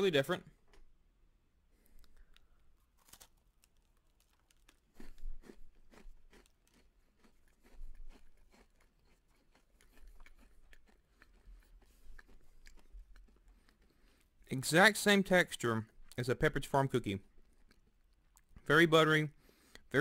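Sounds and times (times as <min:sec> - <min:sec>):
person crunching a cookie: 0:01.8 - 0:14.5, 0:17.2 - 0:18.7.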